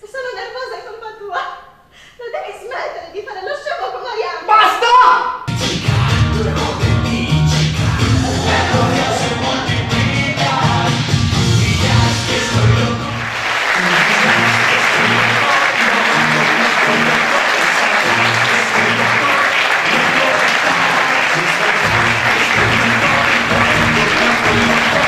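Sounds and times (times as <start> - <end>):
song with bass line: 5.5 - 25.0
audience applauding: 7.8 - 25.0.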